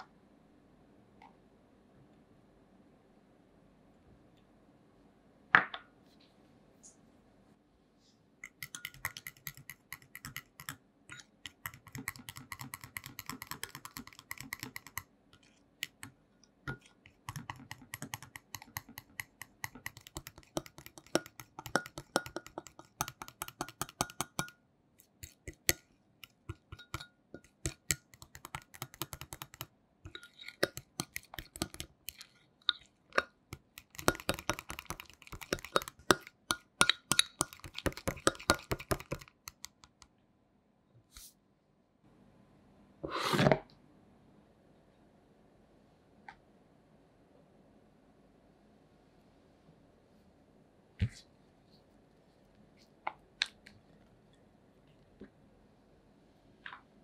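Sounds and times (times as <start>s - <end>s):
utensil beating mixture in bowl: 8.4s - 40.0s.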